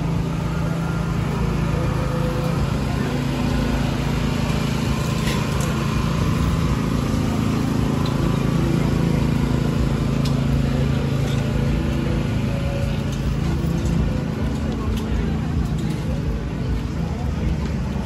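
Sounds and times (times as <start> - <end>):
low mechanical hum: 0.0 - 18.0
market crowd bustle: 0.0 - 18.0.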